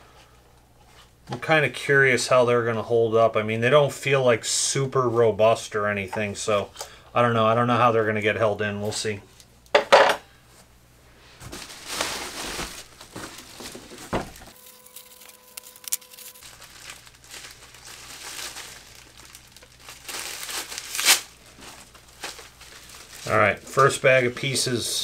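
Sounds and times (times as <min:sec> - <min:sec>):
plastic bag crinkling: 0:11.5 - 0:24.5.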